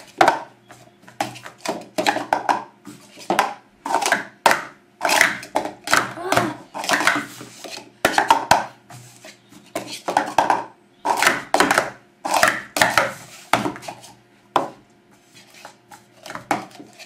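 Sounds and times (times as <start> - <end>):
plastic cups clacking: 1.2 - 8.7, 9.7 - 14.7.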